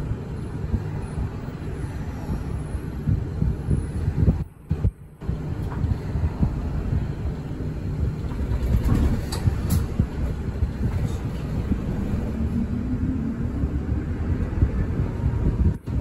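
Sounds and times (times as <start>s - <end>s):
bus engine and road rumble: 0.0s - 16.0s.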